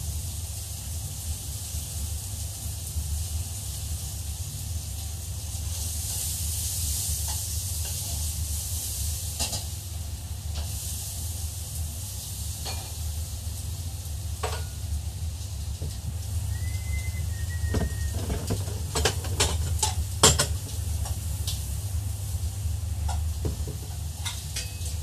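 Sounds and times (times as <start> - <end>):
chicken sizzling in a pan: 0.0 - 25.0
steady low hum: 13.4 - 25.0.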